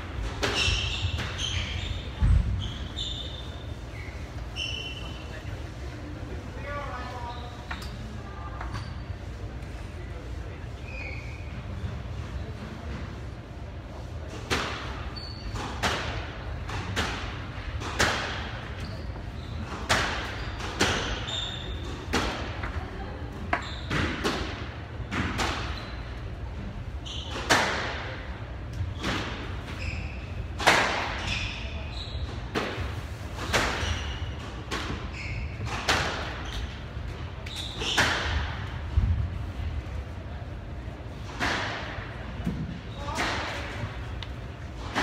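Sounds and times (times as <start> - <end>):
court shoes squeaking: 0.0 - 5.6, 6.6 - 9.8, 10.5 - 13.1, 14.2 - 38.8
squash ball hitting walls: 19.8 - 21.3, 21.9 - 22.8.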